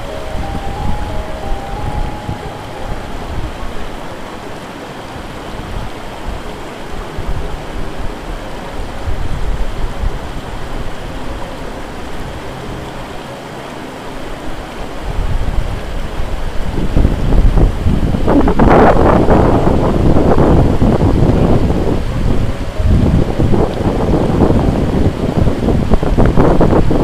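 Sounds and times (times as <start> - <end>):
wind buffeting microphone: 0.0 - 13.0, 14.4 - 27.0
fast-flowing river water: 0.0 - 27.0.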